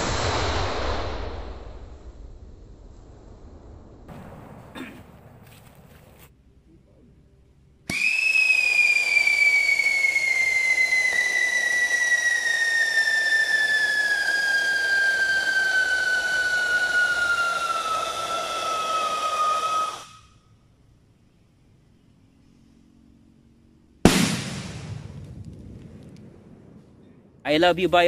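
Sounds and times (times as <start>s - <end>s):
whistling firework: 0.0s - 4.7s, 7.9s - 20.4s, 24.0s - 26.2s.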